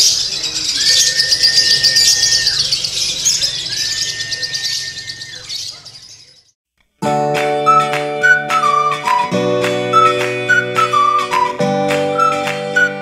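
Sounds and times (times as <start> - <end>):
long level whistle: 0.8 - 2.7, 7.7 - 11.6.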